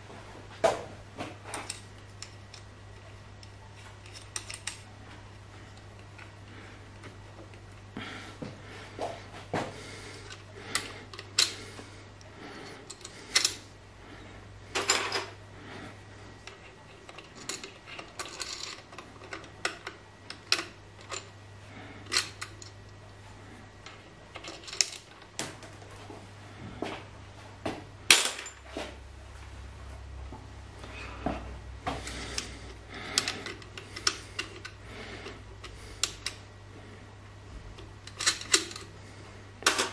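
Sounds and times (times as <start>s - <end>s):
steady low hum: 0.0s - 39.9s
metal parts and tool clinking: 3.9s - 4.9s, 16.4s - 21.3s, 24.3s - 25.2s, 28.1s - 28.7s, 38.0s - 38.9s.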